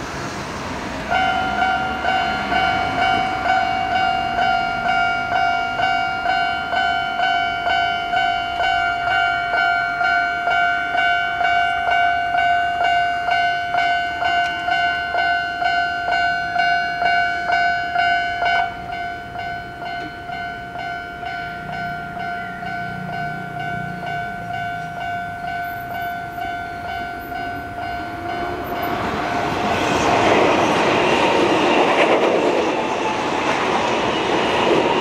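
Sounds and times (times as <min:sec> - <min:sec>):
level crossing alarm dinging: 0:01.1 - 0:31.2.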